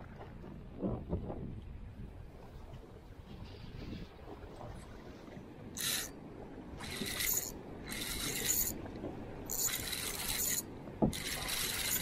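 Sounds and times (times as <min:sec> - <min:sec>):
spinning reel whirring: 0:05.8 - 0:06.1, 0:06.8 - 0:08.8, 0:09.5 - 0:12.0.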